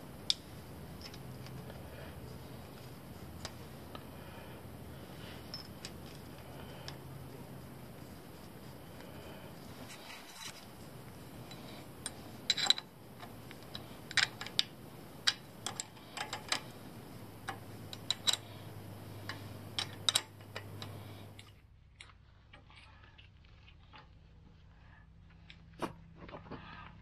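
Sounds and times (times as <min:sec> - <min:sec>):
quiet hum: 0:00.0 - 0:27.0
metal hand tools clinking on concrete: 0:17.5 - 0:18.6.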